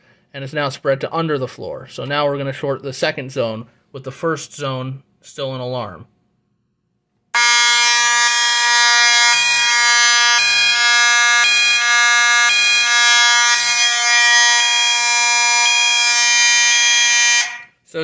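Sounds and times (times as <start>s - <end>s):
pulsing alarm tone: 7.4s - 17.7s
fire alarm horn buzzy tone: 7.4s - 17.8s.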